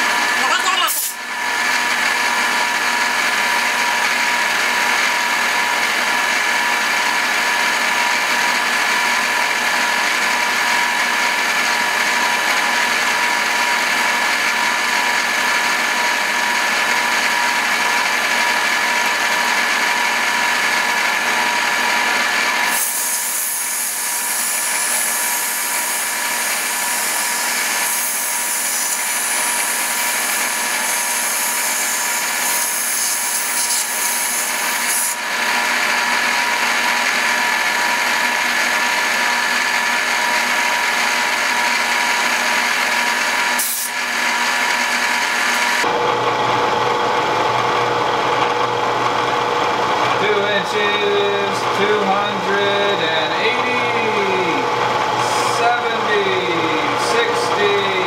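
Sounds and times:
milling machine whine: 0.0s - 58.0s.

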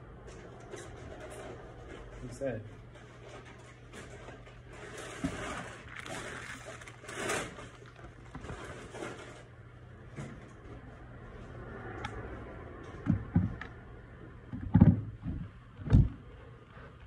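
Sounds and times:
rustling handling noises: 0.3s - 9.6s.

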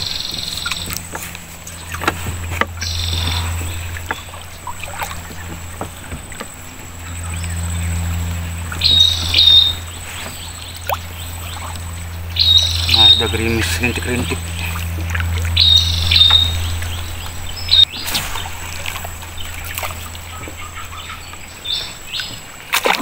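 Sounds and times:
bird trilling: 0.0s - 18.0s
paddle working water: 0.0s - 23.0s
steady low hum: 0.0s - 23.0s
water splashing: 0.0s - 23.0s
knocks on wooden boat: 5.0s - 7.0s.

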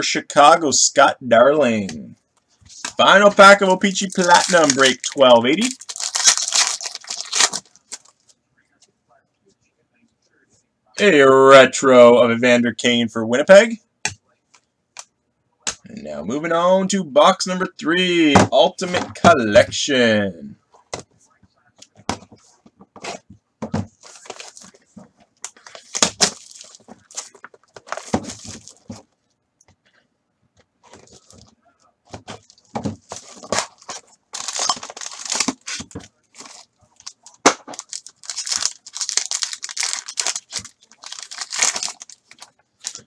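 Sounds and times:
plastic wrap crinkling and tearing: 3.0s - 8.2s, 25.6s - 28.9s, 32.4s - 43.0s.

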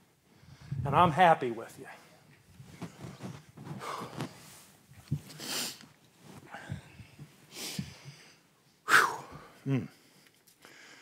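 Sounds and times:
man sniffing and breathing hard: 5.2s - 5.8s, 6.4s - 9.6s.

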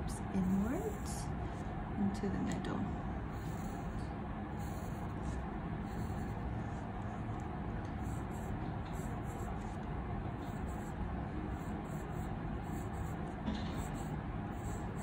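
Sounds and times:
pencil scratching on paper: 3.3s - 7.3s, 7.9s - 15.0s.

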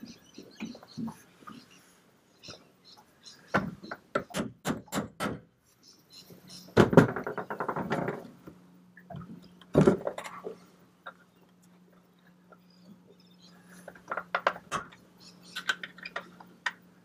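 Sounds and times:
rapid rattle of hammer strikes: 3.5s - 5.5s.

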